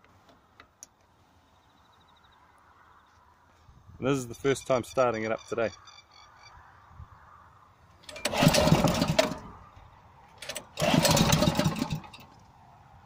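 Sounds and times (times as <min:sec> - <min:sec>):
recoil starter pull: 0:08.0 - 0:09.6, 0:10.4 - 0:12.4
engine turning over: 0:08.0 - 0:09.7, 0:10.4 - 0:12.5.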